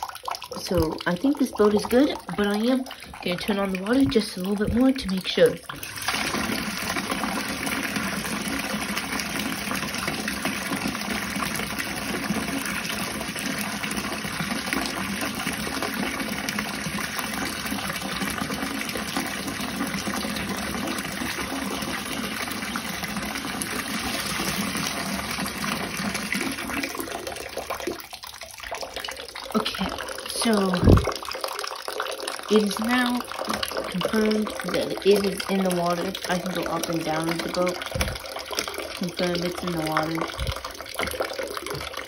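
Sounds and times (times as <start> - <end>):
faucet gushing water into tub: 0.0 - 42.0.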